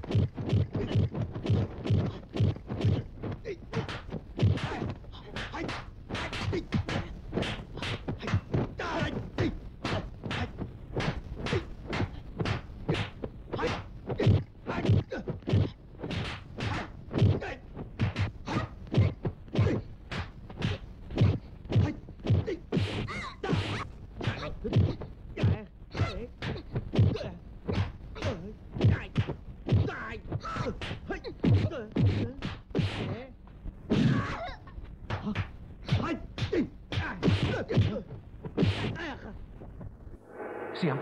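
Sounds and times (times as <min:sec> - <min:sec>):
punch and kick impacts: 0:03.7 - 0:04.8, 0:35.2 - 0:39.0.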